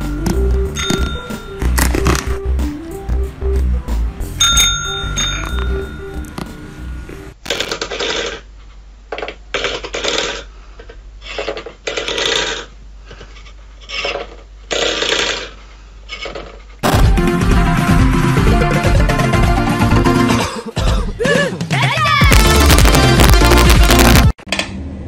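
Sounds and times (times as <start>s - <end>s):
loud music: 0.0s - 7.4s, 16.8s - 20.6s, 21.4s - 24.3s.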